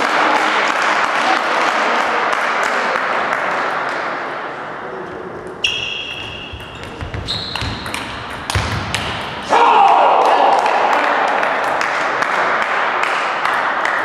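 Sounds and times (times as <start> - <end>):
spectators applauding: 0.0 - 3.9, 9.8 - 14.0.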